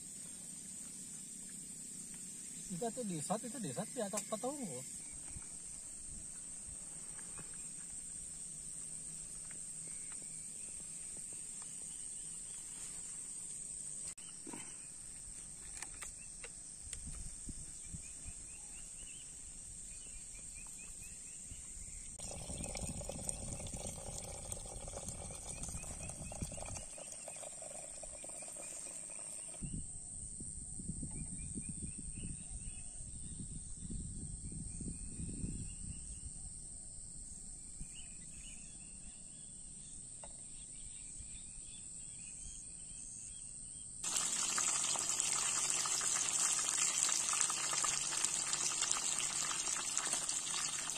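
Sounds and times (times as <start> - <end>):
high-pitched insect drone: 0.0 - 8.3
wind rumbling on microphone: 22.2 - 27.0, 29.6 - 36.6.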